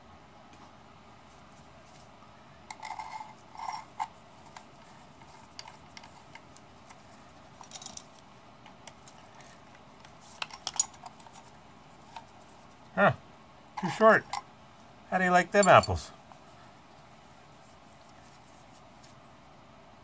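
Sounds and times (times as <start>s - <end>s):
metal bolt scraping: 2.7s - 4.1s.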